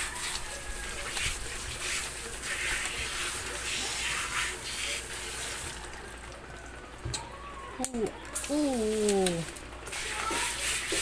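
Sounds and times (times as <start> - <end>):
hose spray hissing and splattering: 0.0 - 5.8, 8.4 - 11.0.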